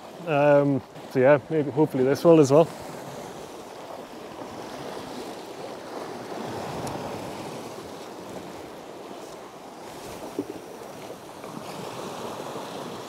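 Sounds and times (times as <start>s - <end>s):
sea waves washing against rocks: 0.0s - 13.0s
wind on microphone: 4.2s - 13.0s.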